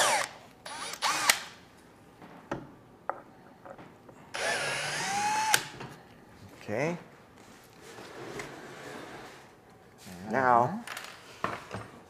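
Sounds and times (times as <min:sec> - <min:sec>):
cordless drill motor whine: 0:00.0 - 0:01.4, 0:04.4 - 0:05.7.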